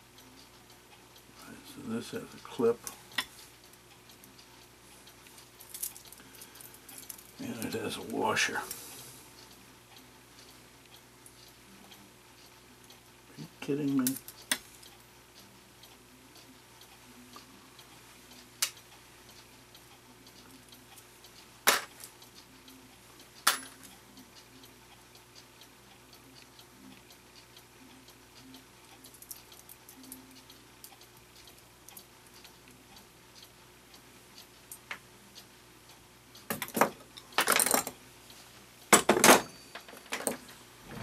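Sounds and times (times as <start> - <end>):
faint steady hum: 0.0 - 41.0
metal clock parts clicking: 28.9 - 32.5.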